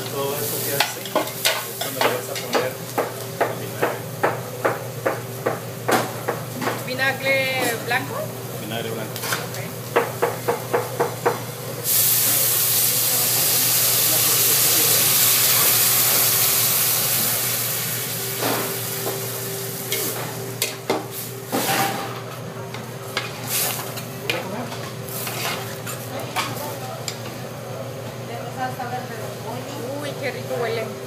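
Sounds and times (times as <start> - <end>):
loud sizzling hiss: 0.0 - 3.0, 11.8 - 21.6.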